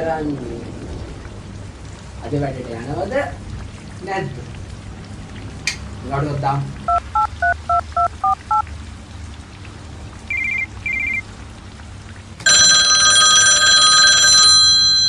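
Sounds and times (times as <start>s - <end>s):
double-beep ringback tones: 6.9s - 8.6s, 10.3s - 11.2s, 12.5s - 15.0s
keypad dialing tones: 6.9s - 8.6s, 10.3s - 11.2s, 12.5s - 15.0s
loud telephone ring: 12.4s - 15.0s.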